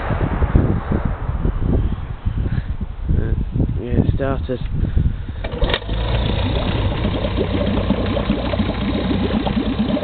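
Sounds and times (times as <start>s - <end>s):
outboard motor running: 5.4s - 10.0s
propeller churning water: 5.4s - 10.0s.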